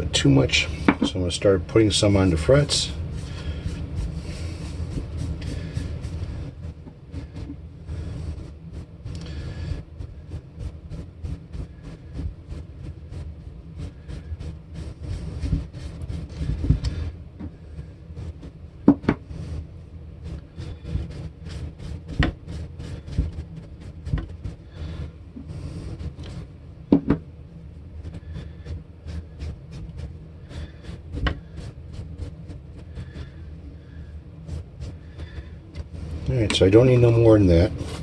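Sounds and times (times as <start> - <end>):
steady low hum: 0.0 - 38.0
rag rubbing metal: 34.4 - 38.0.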